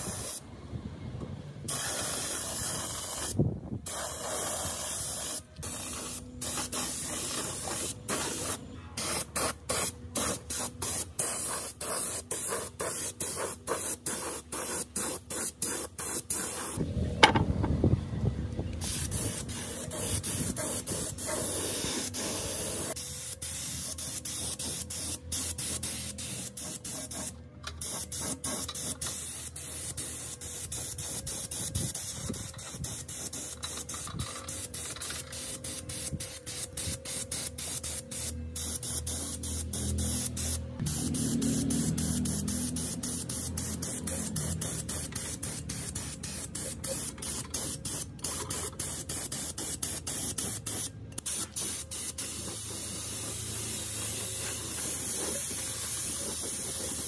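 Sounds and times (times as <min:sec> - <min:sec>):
paint spray gun hissing: 0:00.0 - 0:00.4, 0:01.7 - 0:16.8, 0:18.8 - 0:57.0
low rumble: 0:16.8 - 0:18.8.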